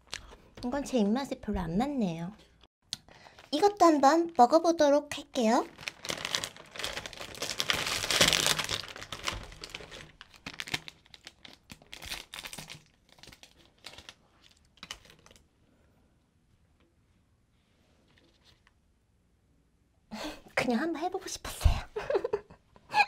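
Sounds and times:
snack bag crinkling: 5.6 - 15.4.

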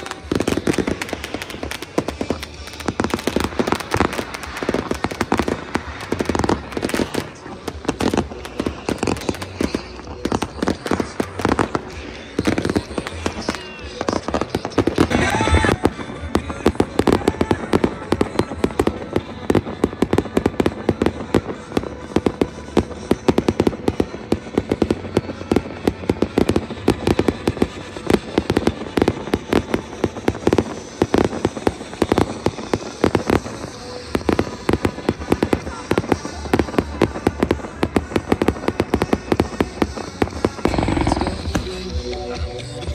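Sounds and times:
fireworks bangs and crackles: 0.0 - 42.9.

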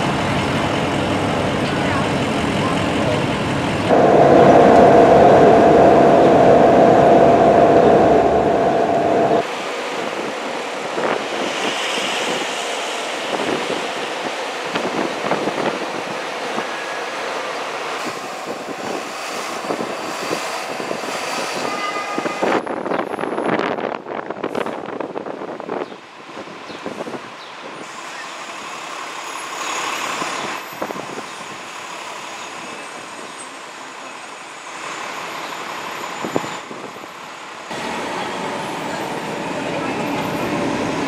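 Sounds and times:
street traffic rumble: 0.0 - 41.0
steady horn-like tone: 3.9 - 9.4.

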